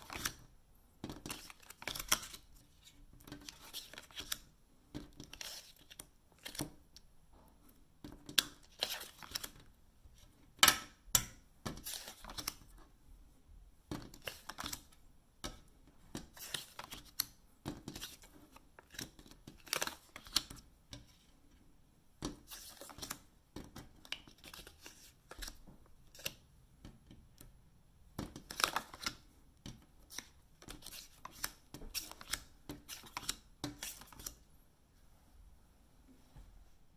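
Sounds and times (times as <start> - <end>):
playing cards scraping and tapping: 1.0 - 4.4, 15.5 - 21.3, 22.2 - 27.2, 28.2 - 34.4.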